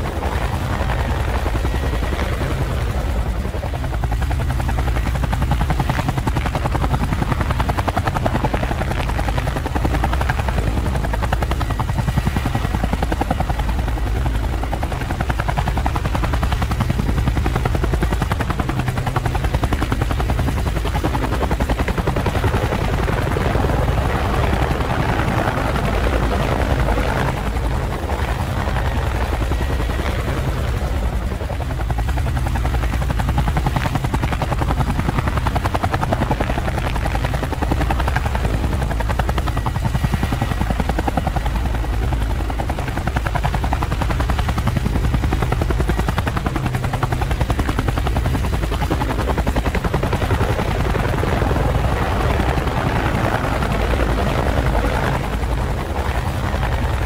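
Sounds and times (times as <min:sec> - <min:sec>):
drone propellers whirring: 0:00.0 - 0:57.0.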